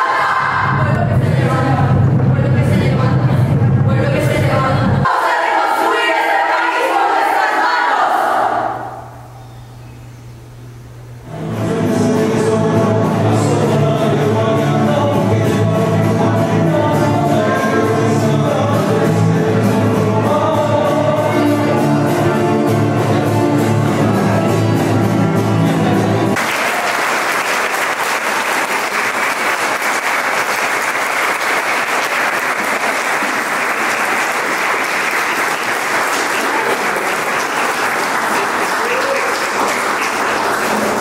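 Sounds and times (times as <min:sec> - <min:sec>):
song with singing: 0:00.0 - 0:09.1, 0:11.2 - 0:26.4
audience clapping: 0:26.4 - 0:41.0.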